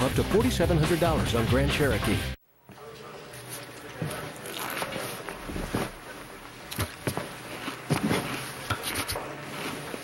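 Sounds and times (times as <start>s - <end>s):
soft rustling and shuffling: 3.3s - 10.0s.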